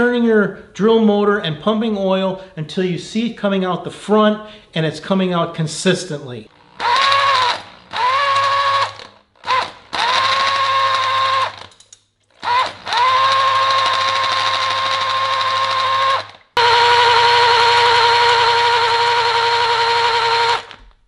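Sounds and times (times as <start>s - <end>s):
electric drill whining: 6.5s - 11.7s, 12.3s - 21.0s.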